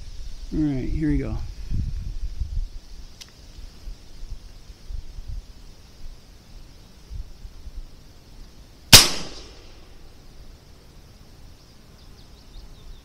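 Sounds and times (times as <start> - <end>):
air rifle shot: 8.9 - 9.9.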